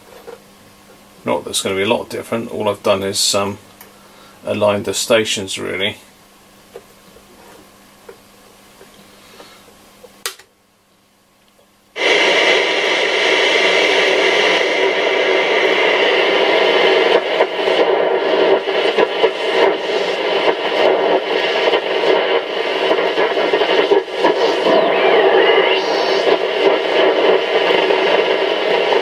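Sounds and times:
radio tuning crackles: 12.0 - 29.0
shortwave radio band noise: 12.0 - 29.0.

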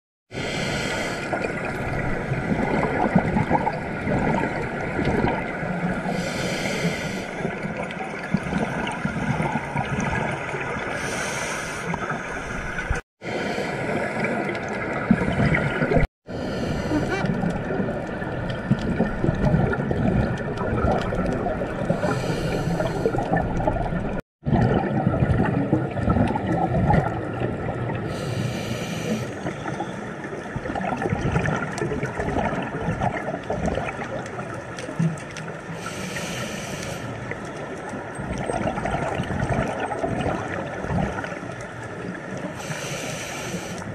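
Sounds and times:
regulator bubbles hissing: 0.3 - 37.5
muffled underwater rush: 0.3 - 43.9.

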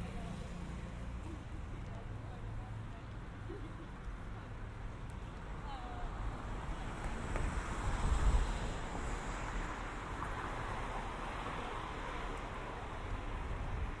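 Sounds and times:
traffic: 0.0 - 14.0
wind buffeting microphone: 6.1 - 9.2, 12.9 - 14.0.

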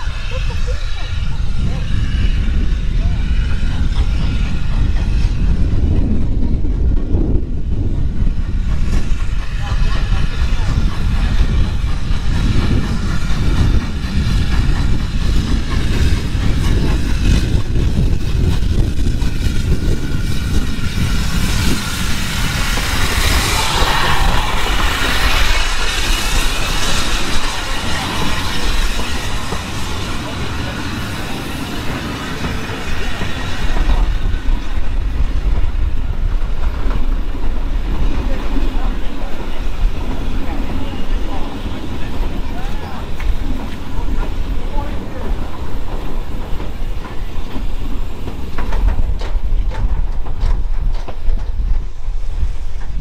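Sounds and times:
steam train rumbling on track: 0.0 - 53.0.

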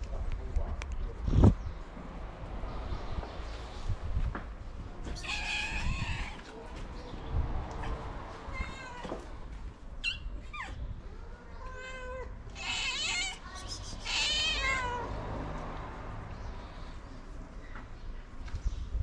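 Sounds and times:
cats meowing: 5.0 - 6.8, 7.7 - 15.2.

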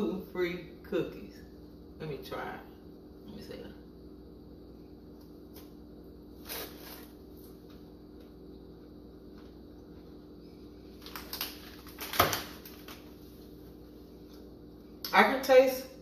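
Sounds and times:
faint steady hum: 0.0 - 16.0
crunchy cookie bite: 10.8 - 13.2
plastic wrapper rustle: 10.9 - 13.4.

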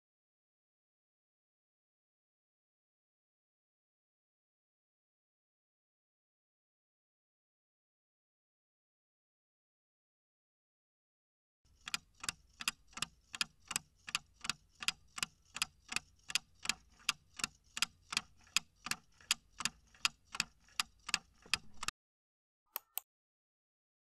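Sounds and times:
clock ticking: 11.7 - 21.9
quick clicks: 18.1 - 21.9.

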